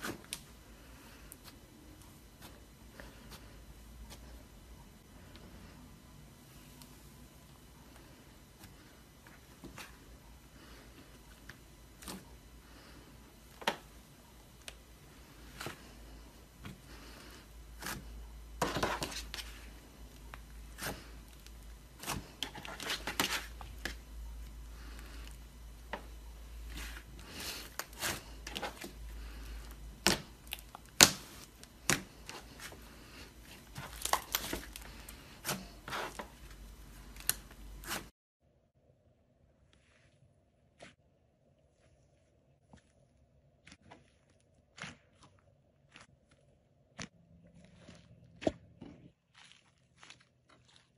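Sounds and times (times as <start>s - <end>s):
slime crinkly tearing: 33.8s - 34.9s.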